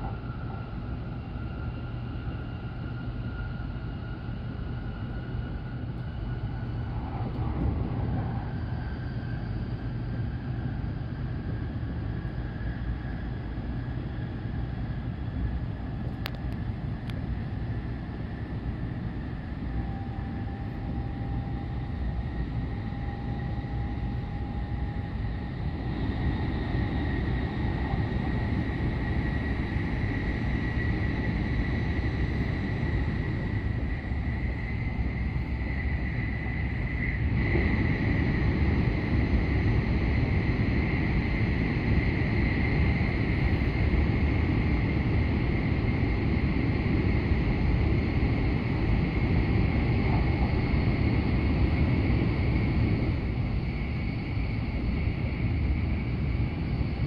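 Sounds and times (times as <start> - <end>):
faint high whine: 0.0 - 57.0
train cabin rumble: 6.0 - 10.3.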